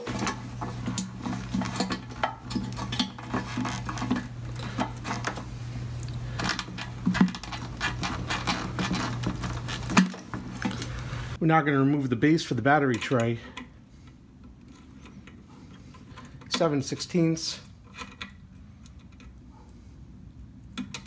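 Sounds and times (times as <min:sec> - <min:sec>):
steady low hum: 0:00.0 - 0:20.9
metallic clicks of hose fittings: 0:12.8 - 0:17.2, 0:17.8 - 0:19.4.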